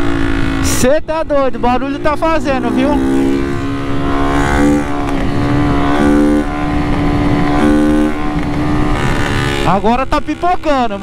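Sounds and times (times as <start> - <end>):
motorcycle engine loud exhaust: 0.0 - 11.0.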